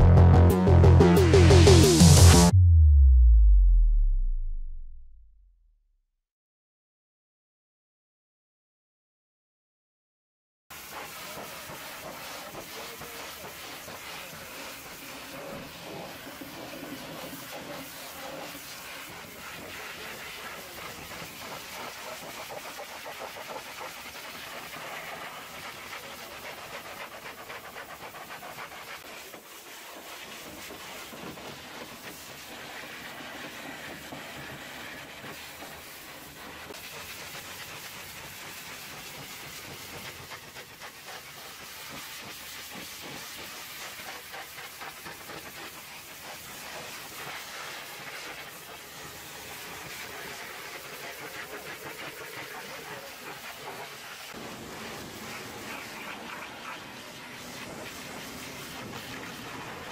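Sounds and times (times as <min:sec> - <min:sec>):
pressure washer jet hissing: 0:10.8 - 0:59.9.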